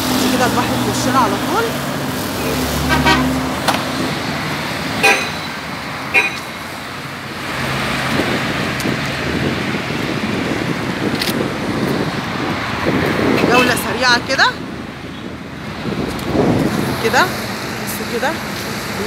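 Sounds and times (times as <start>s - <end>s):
road traffic engines: 0.0s - 19.0s
car horn toots: 2.4s - 3.4s, 5.0s - 6.5s.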